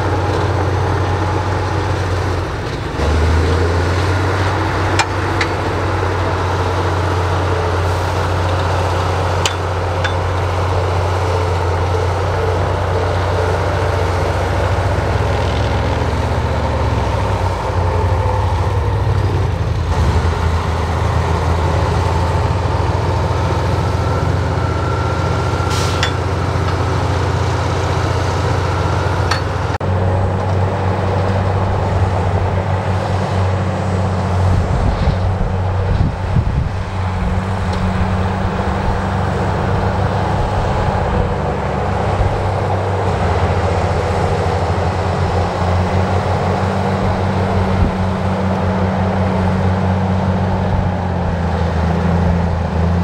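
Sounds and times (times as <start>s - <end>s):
diesel machine running: 0.0s - 53.0s
sharp clicks and knocks: 29.3s - 29.8s.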